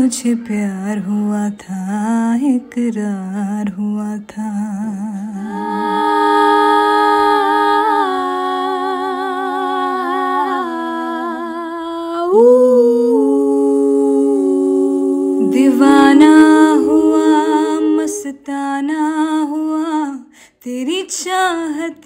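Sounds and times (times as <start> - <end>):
women humming in harmony: 5.2 - 19.5.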